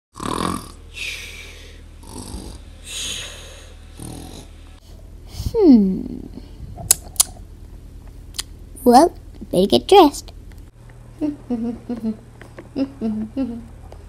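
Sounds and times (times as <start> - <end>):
person mock snoring: 0.2 - 4.5.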